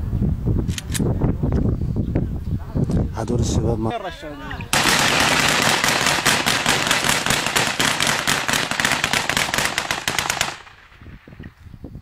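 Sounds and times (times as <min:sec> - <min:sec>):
rapid rifle fire: 0:04.8 - 0:11.4.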